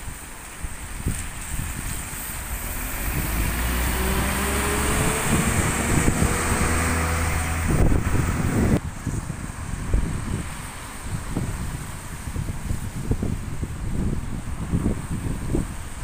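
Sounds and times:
tyres hissing on wet road: 0:00.0 - 0:16.0
bus diesel engine whining: 0:02.1 - 0:08.8.

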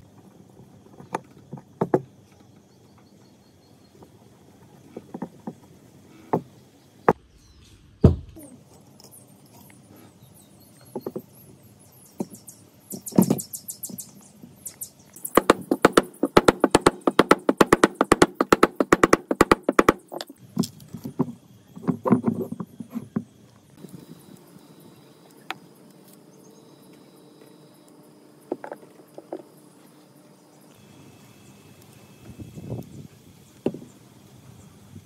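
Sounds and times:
fast run of taps: 0:15.3 - 0:20.3
sharp knocks: 0:15.3 - 0:20.4.

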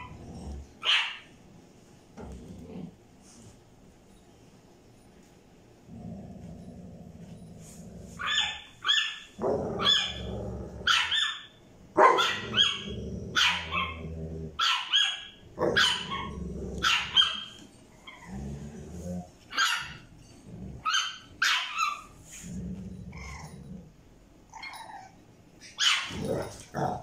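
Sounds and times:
dog growling low: 0:00.0 - 0:00.8, 0:02.2 - 0:03.1, 0:05.9 - 0:08.2, 0:09.4 - 0:10.9, 0:12.5 - 0:14.6, 0:15.6 - 0:16.9, 0:18.0 - 0:19.4, 0:20.4 - 0:20.9, 0:22.4 - 0:24.0
puppy yapping: 0:00.8 - 0:01.2, 0:08.2 - 0:10.2, 0:10.9 - 0:14.0, 0:14.6 - 0:18.2, 0:19.5 - 0:20.0, 0:20.8 - 0:22.1, 0:24.5 - 0:26.2.

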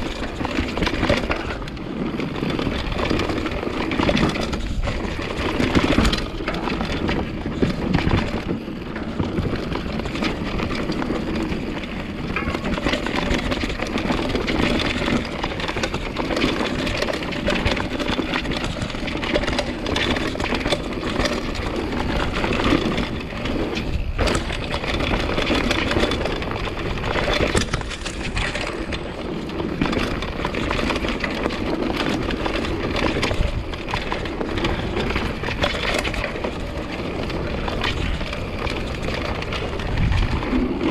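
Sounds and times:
bike rattling over bumps: 0:00.0 - 0:40.9
bike tyre rumble on dirt: 0:00.0 - 0:40.9.

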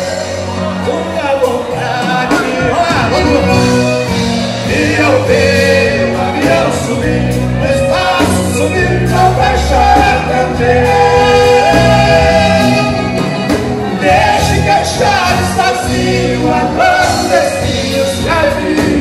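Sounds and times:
band music through speakers: 0:00.0 - 0:19.0
bass: 0:00.0 - 0:19.0
men singing: 0:00.0 - 0:19.0
piano accordion: 0:00.0 - 0:19.0.

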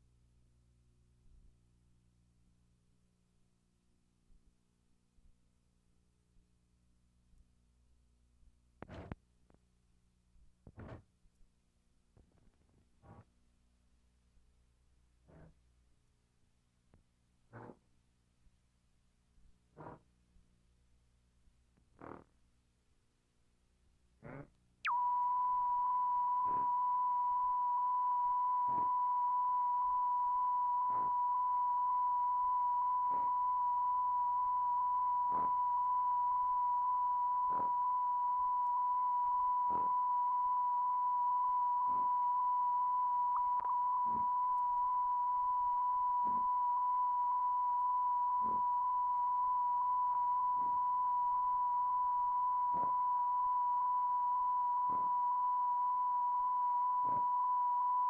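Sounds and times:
electronic test tone: 0:08.8 - 0:09.2, 0:10.8 - 0:11.0, 0:15.3 - 0:15.6, 0:17.5 - 0:17.8, 0:19.8 - 0:20.0, 0:24.2 - 0:58.0.

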